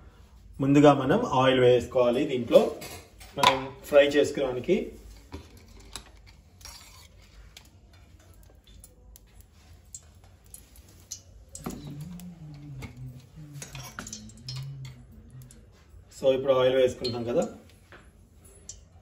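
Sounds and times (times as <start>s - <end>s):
low steady hum: 4.6s - 19.0s
faint metal clicks and taps: 5.2s - 15.8s.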